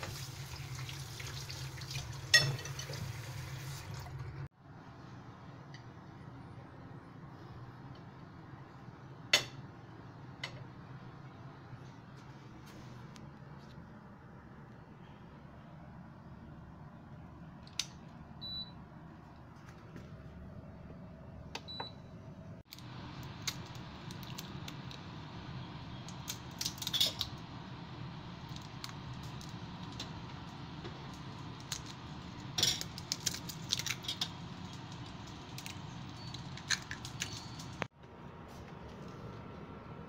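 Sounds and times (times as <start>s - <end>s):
cooktop beeps: 18.4s - 18.8s, 21.6s - 22.1s, 36.1s - 37.9s.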